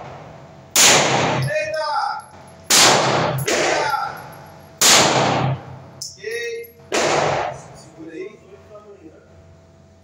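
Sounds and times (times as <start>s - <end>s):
pistol shots echoing indoors: 0.7s - 1.8s, 2.6s - 5.7s, 6.6s - 7.8s.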